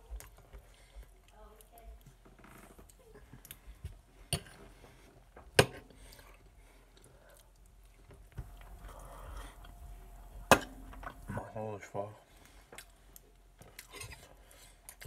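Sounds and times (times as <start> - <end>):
close chewing: 0.0 - 4.0, 6.0 - 11.4, 12.4 - 15.0.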